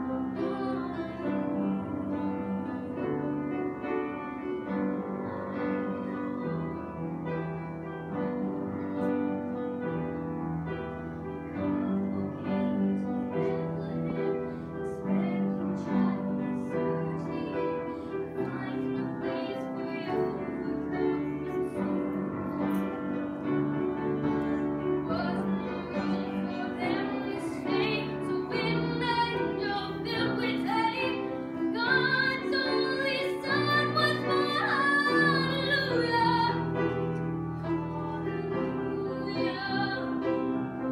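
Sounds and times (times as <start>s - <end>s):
woman singing with vibrato: 0.0s - 1.7s, 11.8s - 22.0s, 24.5s - 37.0s, 37.6s - 40.5s
upright piano playing a hymn: 0.0s - 40.9s.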